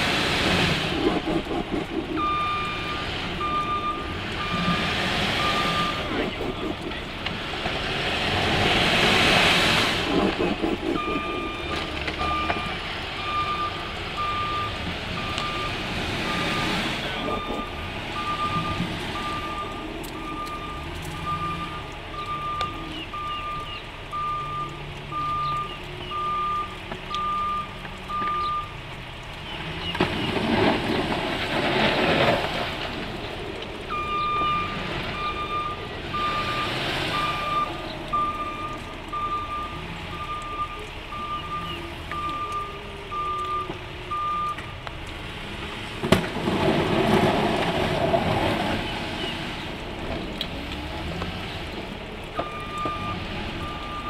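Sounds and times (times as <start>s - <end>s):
plow blade rushing through snow: 0.0s - 21.8s, 29.8s - 40.4s, 45.2s - 54.0s
truck engine running: 0.0s - 54.0s
truck backup alarm beeping: 0.9s - 7.0s, 10.0s - 28.8s, 33.9s - 44.8s, 52.4s - 54.0s.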